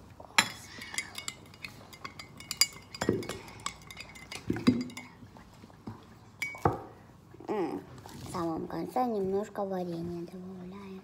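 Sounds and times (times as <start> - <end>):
metal spoon clinking in glass mug: 0.4 - 5.2.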